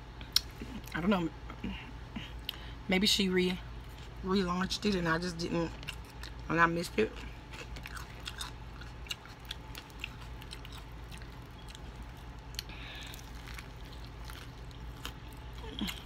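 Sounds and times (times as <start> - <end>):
chewing crispy chicken: 5.7 - 16.0.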